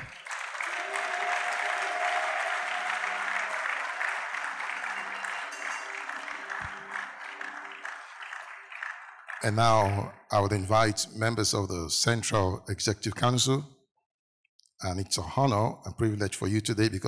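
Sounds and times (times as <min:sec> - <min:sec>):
crowd applauding and cheering: 0:00.0 - 0:10.2.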